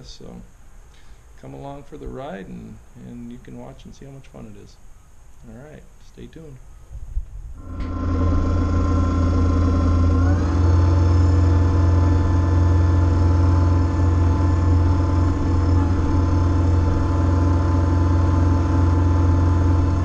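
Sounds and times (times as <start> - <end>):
tractor diesel engine running: 7.6 - 20.0.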